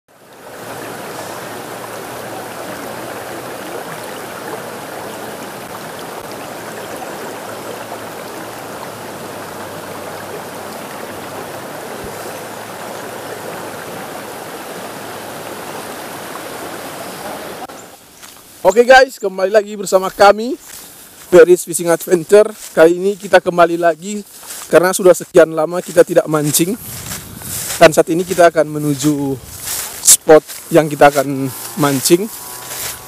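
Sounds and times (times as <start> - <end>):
river flowing over rocks: 0.1 - 18.0.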